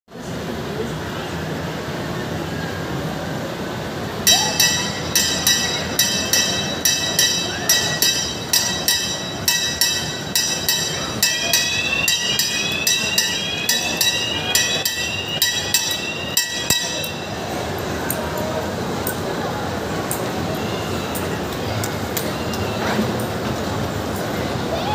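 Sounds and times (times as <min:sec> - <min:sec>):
crowd hubbub: 0:00.1 - 0:24.9
ride bell ringing: 0:04.3 - 0:19.2.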